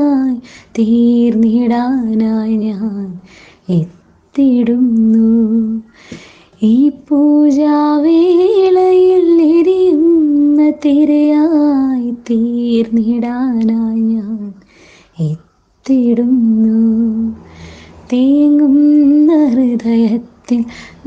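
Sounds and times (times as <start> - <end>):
woman singing unaccompanied: 0.0 - 21.0.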